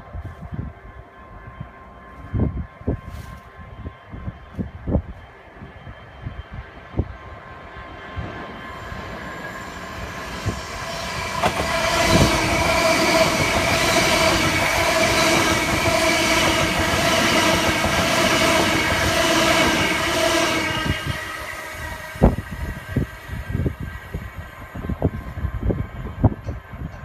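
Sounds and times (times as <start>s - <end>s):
electric train passing: 0.0s - 27.0s.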